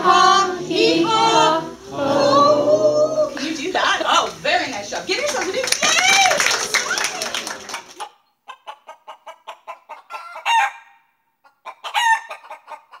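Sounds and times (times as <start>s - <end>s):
voices: 0.0s - 8.0s
applause: 4.7s - 8.0s
chicken clucking: 7.9s - 13.0s
chicken squawking: 8.0s - 10.8s, 11.6s - 13.0s.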